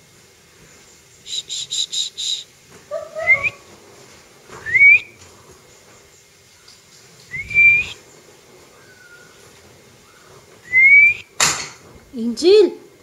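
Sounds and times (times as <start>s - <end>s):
high whistled chirps: 1.2s - 2.5s, 4.6s - 5.2s, 7.3s - 9.4s, 10.1s - 11.4s
rising whistles: 1.2s - 2.5s, 3.2s - 3.7s, 4.6s - 5.2s, 7.2s - 9.4s, 10.0s - 11.4s.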